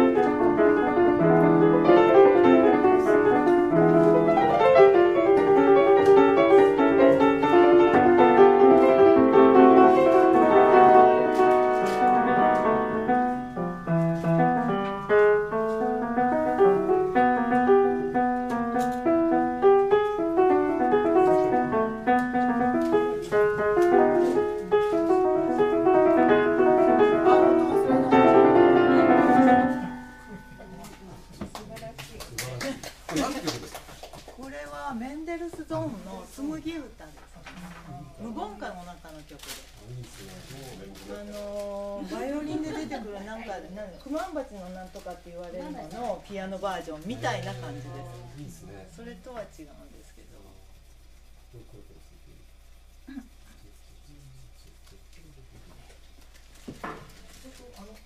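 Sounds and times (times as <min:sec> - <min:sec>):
upright piano playing: 0:00.0 - 0:31.7.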